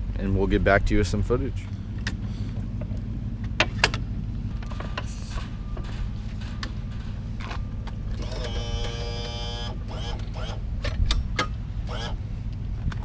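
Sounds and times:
low rumble: 0.0 - 8.3
steady whine: 0.0 - 13.0
metallic clicks and clanks: 4.6 - 8.6.

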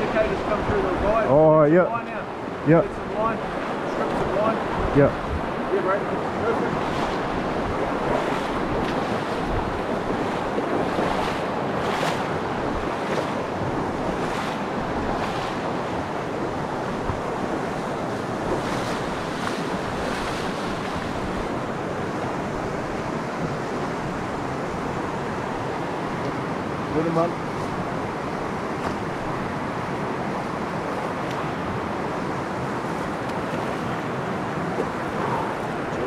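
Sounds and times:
wind noise on microphone: 0.0 - 1.4, 2.4 - 26.7
mountain stream rushing over rocks: 0.0 - 36.0.

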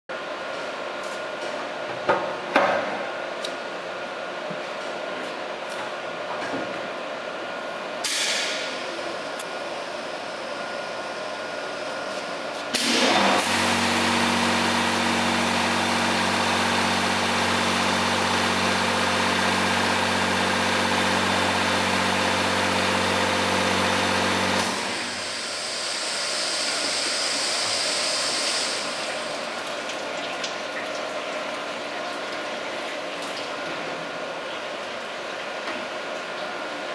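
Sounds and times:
washer pump humming: 12.8 - 36.9.

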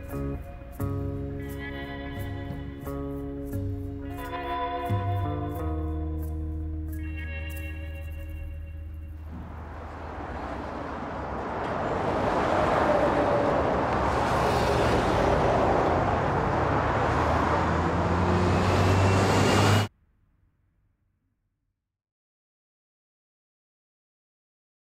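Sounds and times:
motorway traffic roar: 0.0 - 19.9.

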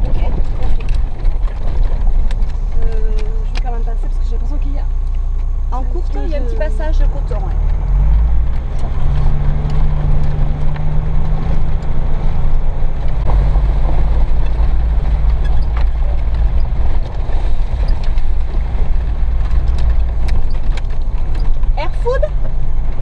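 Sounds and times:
knocks and rattles: 0.0 - 4.6, 7.4 - 23.0
car engine under load: 0.0 - 23.0.

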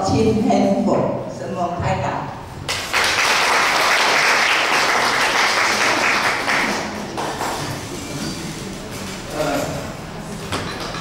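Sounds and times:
audience applauding: 2.7 - 7.9.

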